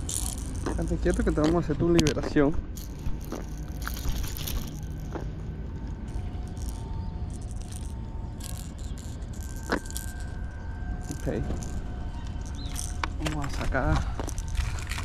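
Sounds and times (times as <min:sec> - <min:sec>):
hooks jingling: 0:00.0 - 0:05.2, 0:11.0 - 0:15.0
steady low rumble: 0:00.0 - 0:15.0
metal tool rattling and clicking: 0:02.8 - 0:05.2, 0:11.0 - 0:15.0.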